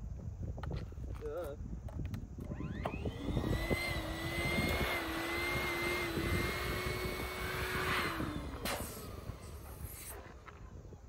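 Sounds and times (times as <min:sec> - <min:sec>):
electric balloon pump whining: 0:02.5 - 0:10.1.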